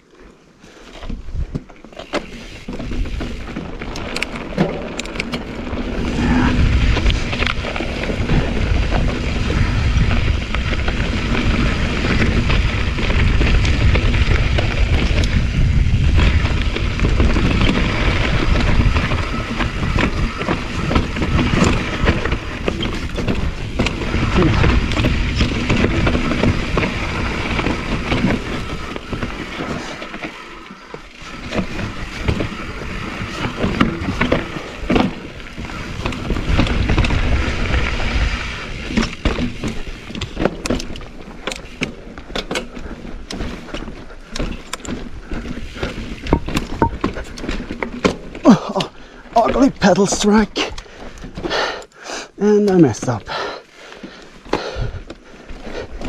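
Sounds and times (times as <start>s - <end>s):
tyres crunching over stones: 0.7s - 56.0s
bike rattling and knocking: 0.9s - 56.0s
wind rumble on microphone: 2.6s - 30.2s, 31.0s - 41.2s.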